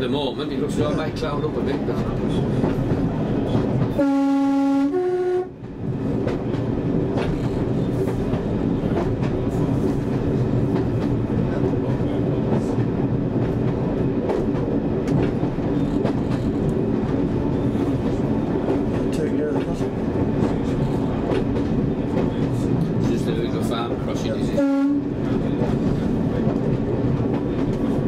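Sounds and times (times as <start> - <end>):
two-tone train horn: 4.0 - 5.6, 24.6 - 25.1.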